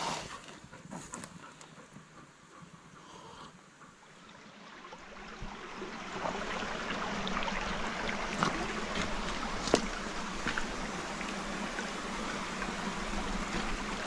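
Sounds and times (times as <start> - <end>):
small water splashes and trickles: 4.0 - 14.0
stream running over stones: 4.1 - 14.0.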